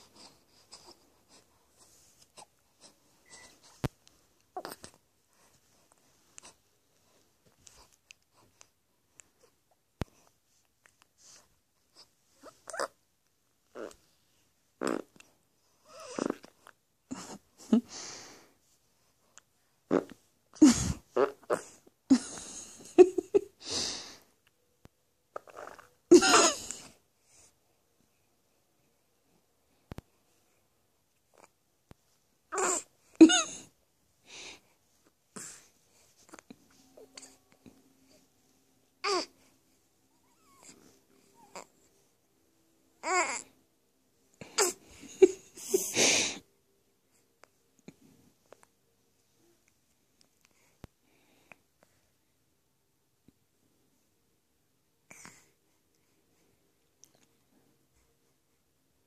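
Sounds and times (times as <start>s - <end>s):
baby grunting and huffing: 14.8s - 15.2s, 15.9s - 17.4s, 25.4s - 27.0s, 32.5s - 33.7s, 39.0s - 39.3s, 43.0s - 43.6s, 44.5s - 44.9s
baby strained cry: 32.5s - 33.5s, 39.0s - 39.3s, 43.0s - 43.5s.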